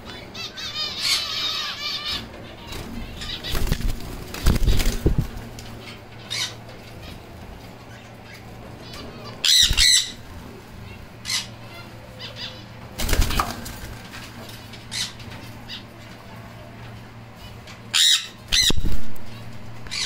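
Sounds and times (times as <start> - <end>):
steady low hum: 0.0 - 20.0
parrots shrill calls: 0.1 - 2.4, 8.0 - 10.2, 17.9 - 18.8.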